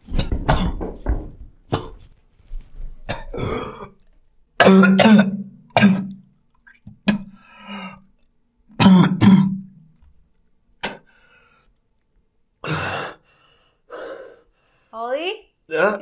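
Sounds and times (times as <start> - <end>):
man coughing hard: 0.4 - 0.9, 3.1 - 3.9, 4.6 - 6.1, 8.8 - 9.6.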